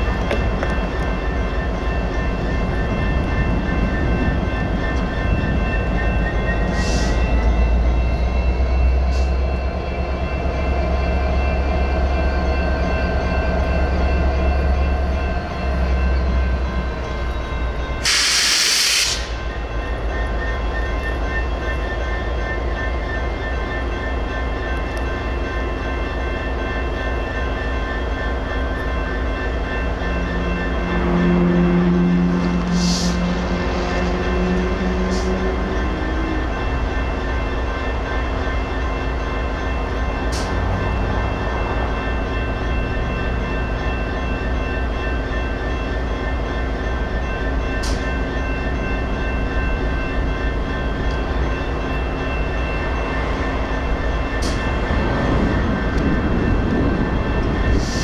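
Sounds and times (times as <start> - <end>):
railroad crossing bells ringing: 0.0 - 58.0
air hiss burst: 18.0 - 19.4.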